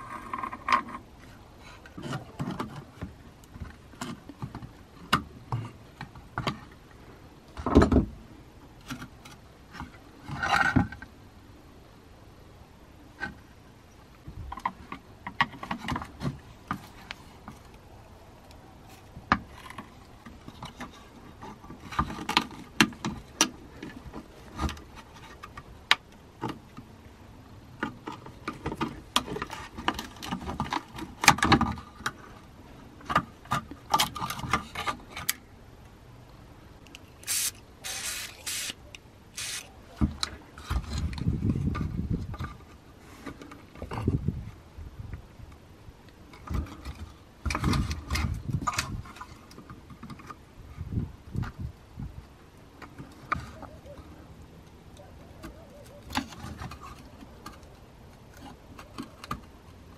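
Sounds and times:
quick rasping scrapes: 37.2 - 38.8, 39.4 - 39.7.

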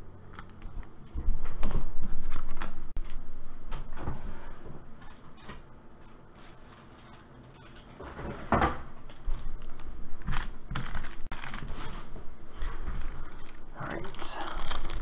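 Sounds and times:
plastic rustling: 9.0 - 15.0.

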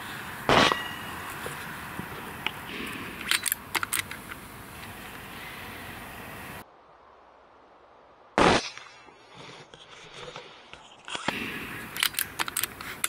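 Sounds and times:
air rifle shot: 0.5 - 1.1, 8.4 - 9.0
metallic clicks of rifle action: 2.4 - 4.4, 11.1 - 13.0.

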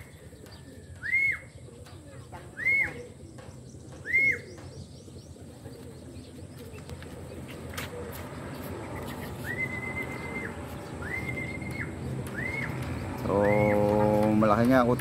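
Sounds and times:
person whistling: 9.4 - 11.7.

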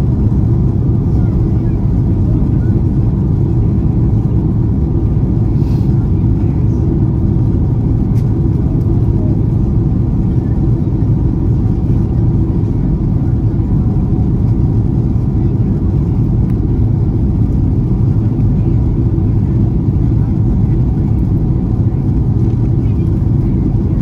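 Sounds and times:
airplane engines rumbling: 0.0 - 24.0
rushing airflow: 1.9 - 19.2.

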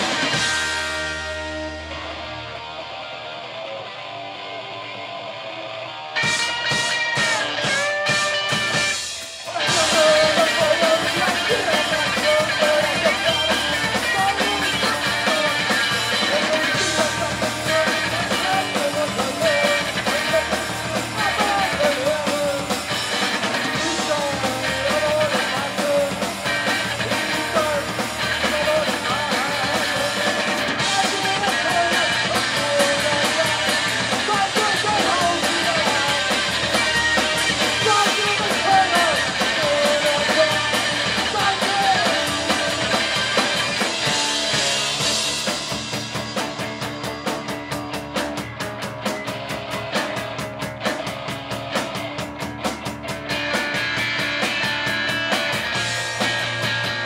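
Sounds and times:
electric guitar ringing: 0.0 - 48.6
punk band playing: 0.0 - 57.0
person singing: 6.3 - 44.8.

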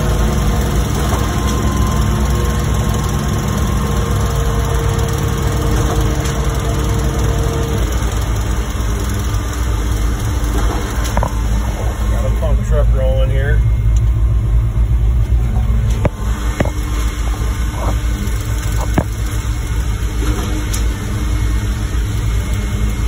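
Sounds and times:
diesel engine running: 0.0 - 23.0
steady pump whine: 0.0 - 23.0.

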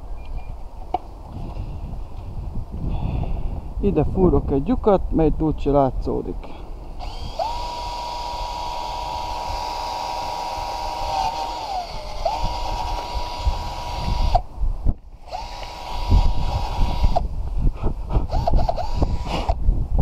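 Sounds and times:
power drill whining: 6.9 - 14.4, 15.2 - 17.2, 18.3 - 19.6.

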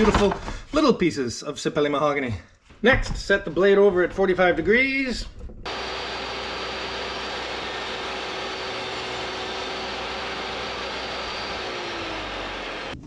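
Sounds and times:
table saw whining: 5.7 - 13.0.

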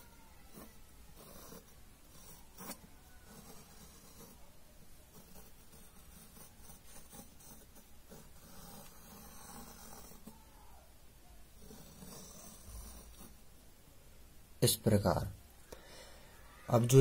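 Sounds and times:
pencil scratching on paper: 0.0 - 10.8, 11.5 - 13.5
low room noise: 0.0 - 17.0.

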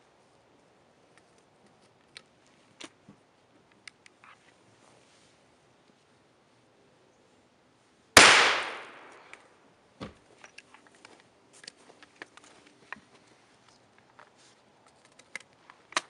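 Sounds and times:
shotgun blast: 8.2 - 9.3.

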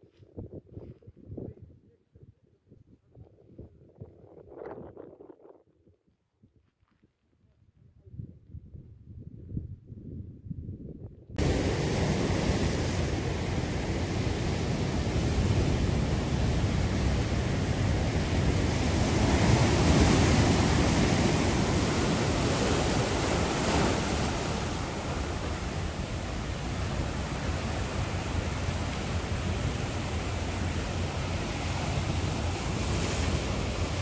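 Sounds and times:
waves breaking over rocks: 11.4 - 34.0.

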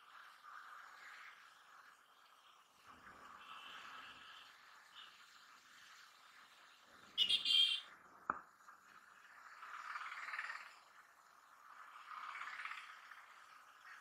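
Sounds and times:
muffled traffic and motorcycle: 0.0 - 14.0
vehicle horn honking: 7.2 - 7.9.

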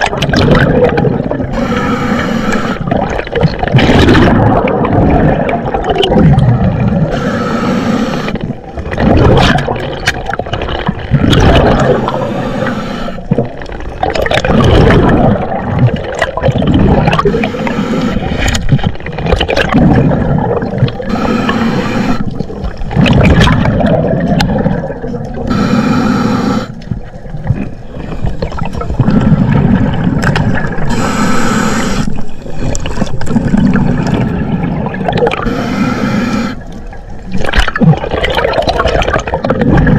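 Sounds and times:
underwater bubbling and rushing water: 0.0 - 39.9
bright underwater hiss: 1.5 - 2.8, 7.1 - 8.4, 11.8 - 13.3, 21.1 - 22.3, 25.5 - 26.8, 30.9 - 32.2, 35.4 - 36.7.

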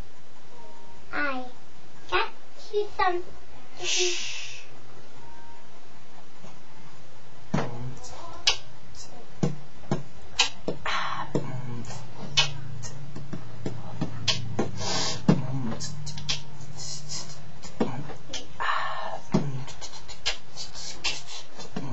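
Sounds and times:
low steady tone: 5.0 - 9.4, 10.9 - 19.7
beatboxing vocal percussion: 7.6 - 21.9.

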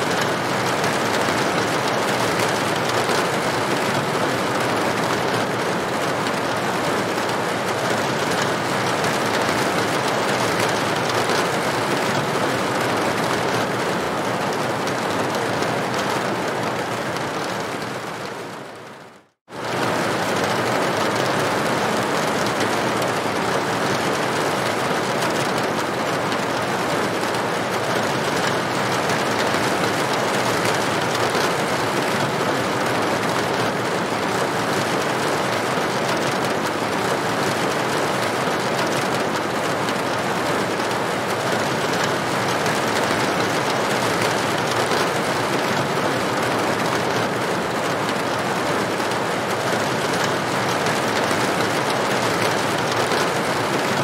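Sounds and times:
rain on a tin roof: 0.0 - 54.0.

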